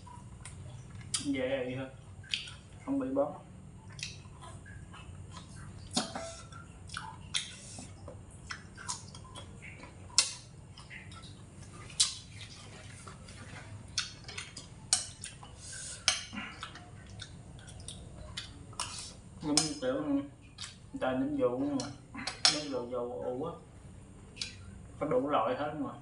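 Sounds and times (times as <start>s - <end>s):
close-up chewing: 3.8s - 19.4s
spoon scraping a ceramic plate: 6.0s - 6.5s.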